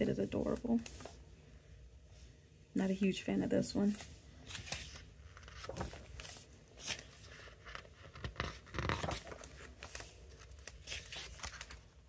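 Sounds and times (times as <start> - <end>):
photobook pages turning: 0.0 - 1.2, 3.8 - 12.0.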